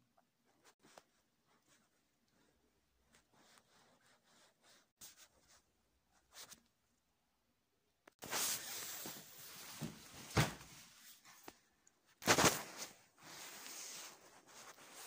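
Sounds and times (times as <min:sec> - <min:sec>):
fabric rustling near microphone: 0:08.2 - 0:15.0.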